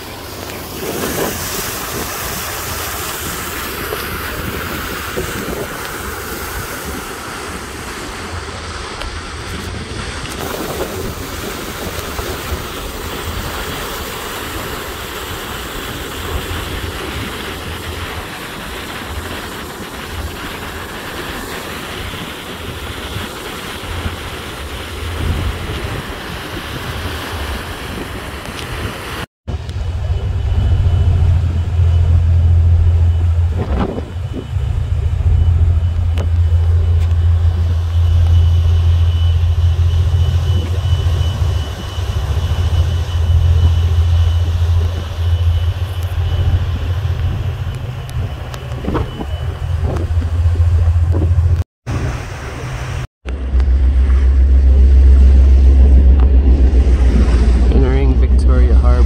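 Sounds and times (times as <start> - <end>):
wind buffeting the microphone: 0.0 - 52.4
water rushing along a hull: 0.0 - 59.0
low rumble: 29.5 - 59.0.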